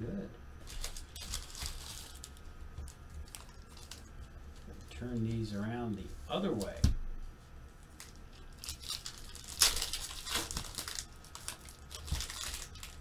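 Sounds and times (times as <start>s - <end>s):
foil wrappers crinkling and tearing: 0.6s - 5.3s, 7.8s - 13.0s.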